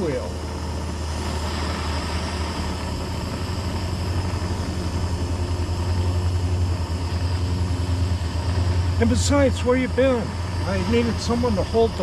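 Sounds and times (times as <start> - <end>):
propane torch roaring and hissing: 0.0 - 12.0.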